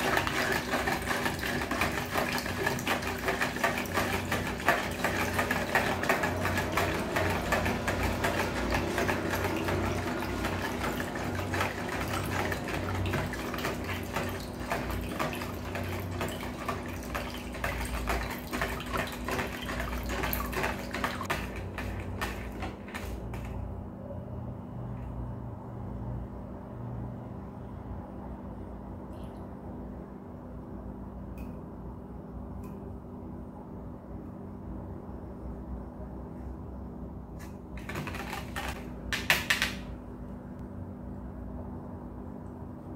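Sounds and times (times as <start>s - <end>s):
liquid splashing: 0.0s - 23.4s
whisk clicking against tub: 0.0s - 23.6s.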